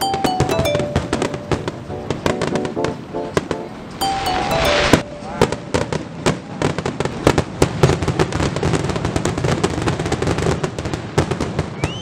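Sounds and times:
fireworks crackling and popping: 5.4 - 12.0
loud fireworks bangs: 5.4 - 12.0.

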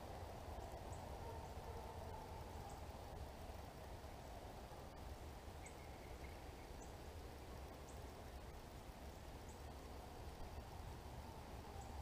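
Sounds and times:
low wind-like rumble: 0.0 - 12.0.

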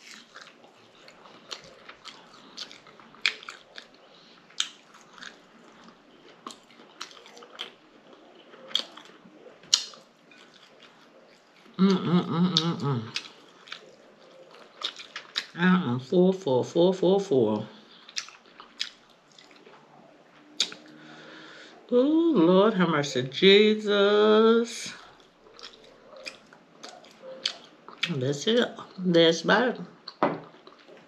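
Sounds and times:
chewing and biting: 0.0 - 11.8, 12.5 - 15.6, 17.8 - 21.1, 25.0 - 28.2, 30.0 - 31.0
food crunching: 0.0 - 15.6, 17.5 - 21.3, 25.0 - 28.2, 29.8 - 31.0
person humming: 11.8 - 13.1
wet lip-smacking: 20.6 - 20.9.

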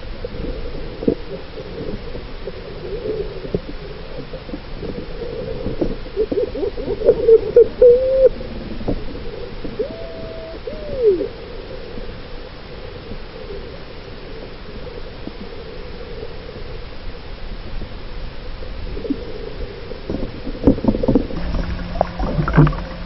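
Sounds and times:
squeaky hoots: 9.8 - 11.3.

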